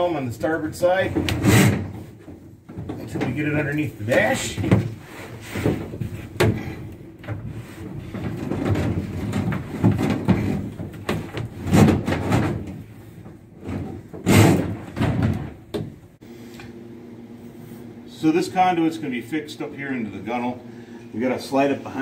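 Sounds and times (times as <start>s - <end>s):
knocks against wood and metal: 5.6s - 16.0s.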